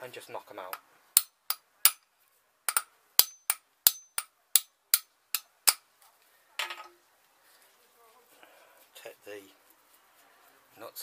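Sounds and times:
hammer striking steel: 1.2 - 2.0, 2.7 - 5.8.

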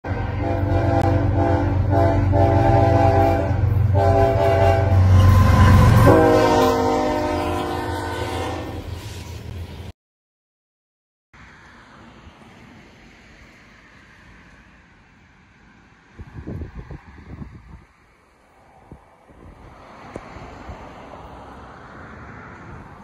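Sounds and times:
locomotive air horn blasts: 0.0 - 9.0.

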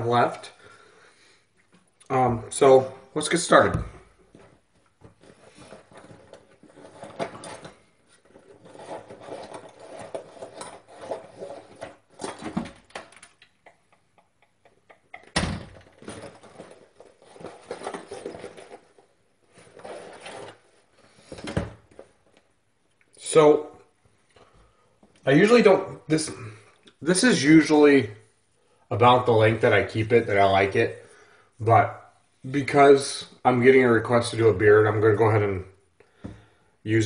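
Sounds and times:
rustling and handling noises: 2.6 - 13.7, 15.2 - 23.3.

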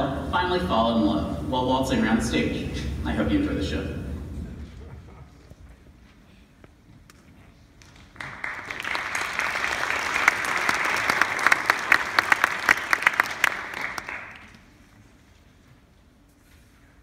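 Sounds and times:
audience applauding: 7.8 - 14.9.

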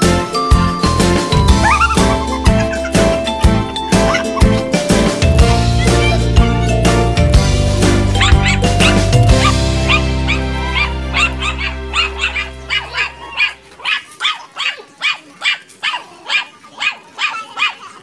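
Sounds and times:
background music: 0.0 - 14.0
puppies yipping: 0.0 - 18.0.

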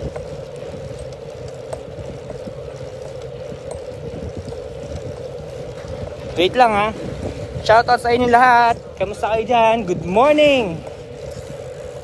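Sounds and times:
wind on microphone: 0.0 - 12.0
microphone handling rumble: 4.0 - 11.6.

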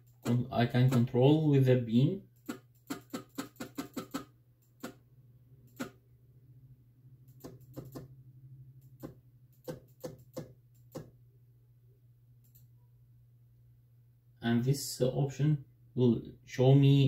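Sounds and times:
steady low hum: 4.3 - 17.0.

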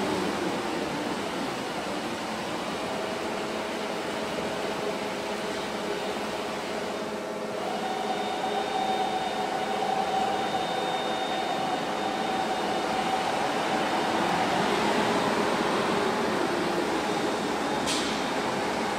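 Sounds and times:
cnc machine whirring: 0.0 - 18.9
steady whine: 5.9 - 18.9.

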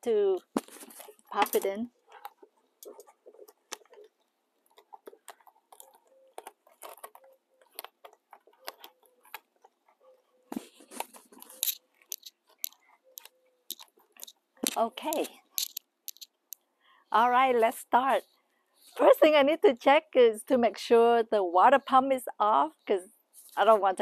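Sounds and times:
fitting clicking and creaking: 0.4 - 16.6.

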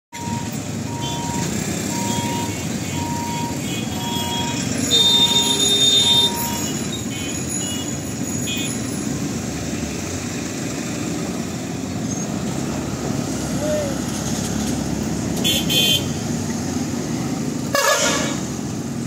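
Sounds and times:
motorcycle and scooter engines: 0.2 - 19.0
high-pitched horn blast: 17.7 - 18.5.

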